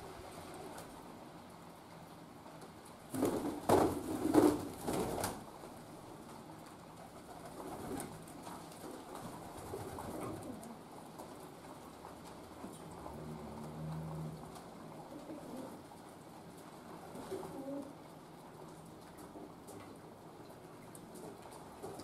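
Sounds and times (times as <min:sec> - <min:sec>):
pigeons cooing: 0:15.0 - 0:15.8, 0:17.2 - 0:18.0.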